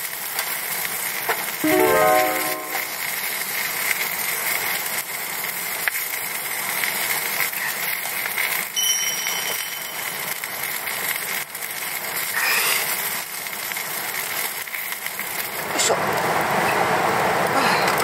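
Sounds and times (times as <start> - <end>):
sausages sizzling in a frying pan: 0.0 - 1.6, 3.0 - 18.0.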